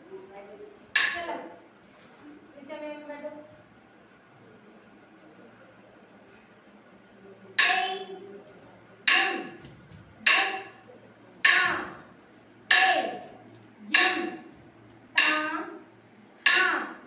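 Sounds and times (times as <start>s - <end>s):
sharp percussive strike: 1.0s - 1.3s, 7.6s - 8.0s, 9.1s - 10.8s, 11.4s - 12.0s, 12.7s - 13.3s, 13.9s - 15.7s, 16.4s - 17.0s
person calling rhythm syllables: 1.0s - 1.5s, 7.6s - 17.0s.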